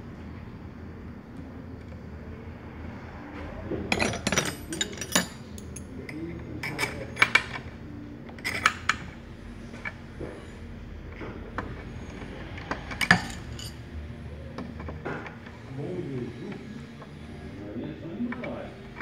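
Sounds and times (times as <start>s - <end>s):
metal parts clinking and tapping: 3.9s - 7.7s, 8.3s - 9.1s, 11.6s - 13.8s.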